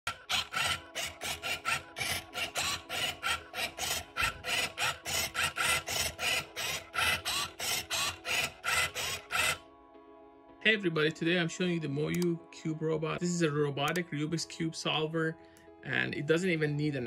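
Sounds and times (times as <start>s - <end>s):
robot gripper motor whirr: 0.0s - 9.6s.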